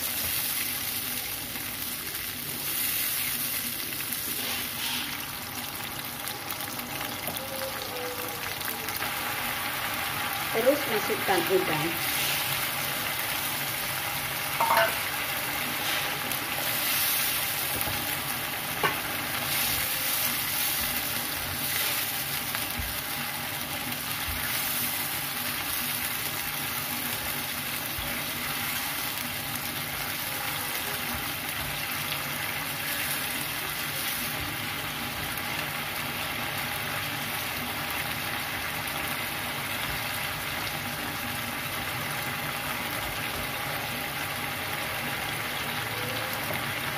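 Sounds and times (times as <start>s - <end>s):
shrimp sizzling in a frying pan: 0.0s - 46.9s
spatula knocking against pan: 14.6s - 15.0s.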